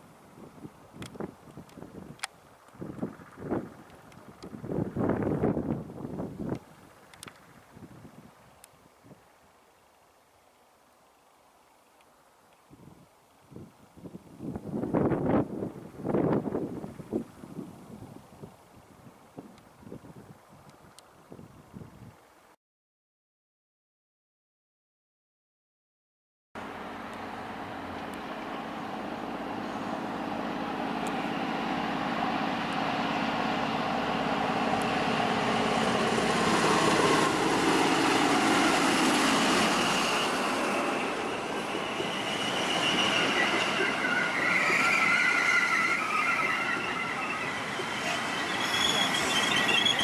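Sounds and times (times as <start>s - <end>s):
train diesel engine: 0.0s - 7.8s, 26.6s - 50.0s
train wheel squeal: 34.4s - 50.0s.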